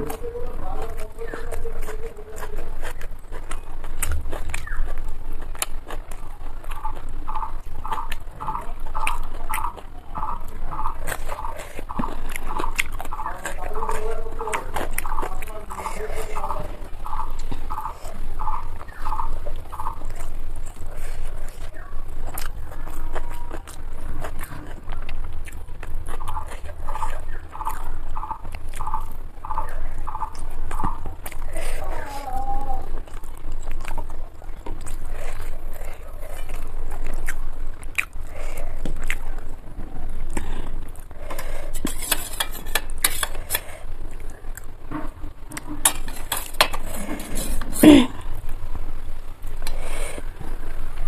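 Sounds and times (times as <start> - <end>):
chewing and mouth clicks: 0.0 - 48.6, 49.4 - 51.0
low steady hum: 0.0 - 51.0
fingers picking at rice: 41.1 - 47.8
fingers working rice: 41.2 - 43.9.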